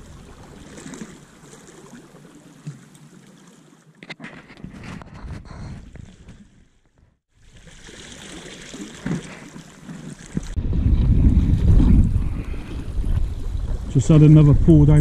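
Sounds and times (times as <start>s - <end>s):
small waves on rocky shore: 0.0s - 4.6s, 7.2s - 14.4s
wind on microphone: 4.5s - 6.4s, 10.4s - 15.0s.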